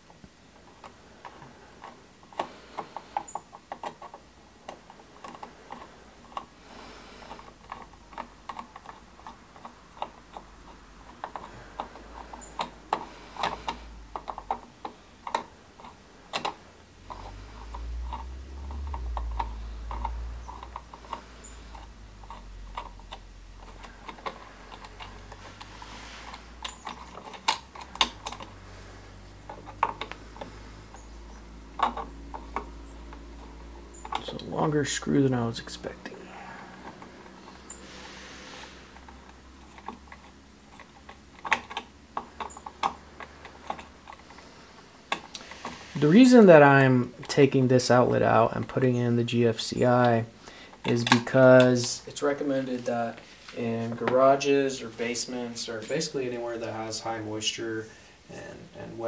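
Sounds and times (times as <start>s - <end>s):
low rumble: 16.9s - 25.9s.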